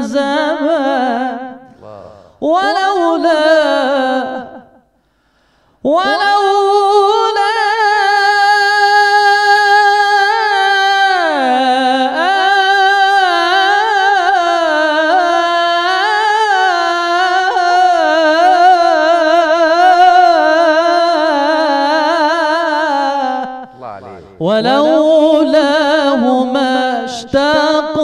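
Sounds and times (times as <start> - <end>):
man singing unaccompanied: 1.8 - 2.2, 23.8 - 28.0.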